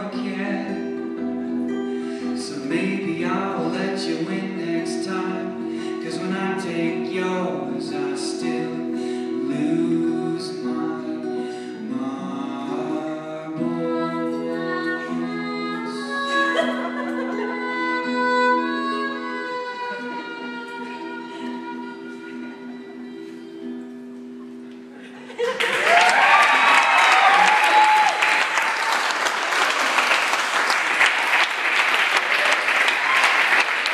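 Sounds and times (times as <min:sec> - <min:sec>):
audience applauding and cheering: 0:25.4 - 0:33.9
drawn-out whoop: 0:25.7 - 0:29.1.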